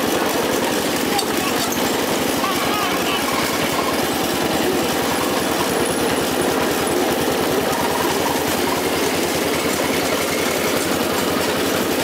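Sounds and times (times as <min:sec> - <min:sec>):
riding lawn mower engine: 0:00.0 - 0:12.0.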